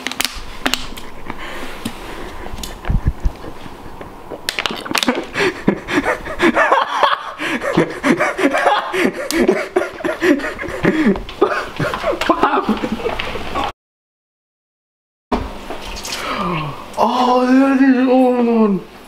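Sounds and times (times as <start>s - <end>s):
hearty laughter: 2.2s - 13.7s.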